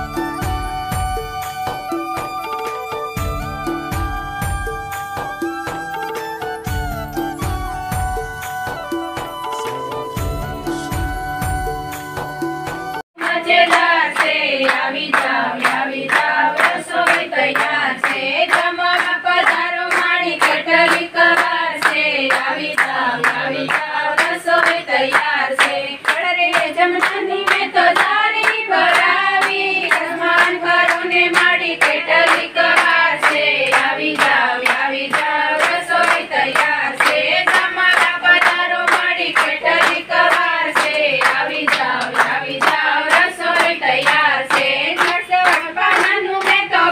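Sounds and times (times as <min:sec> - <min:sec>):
hands clapping in a beat: 0:00.0 - 0:46.9
group singing: 0:13.2 - 0:46.9.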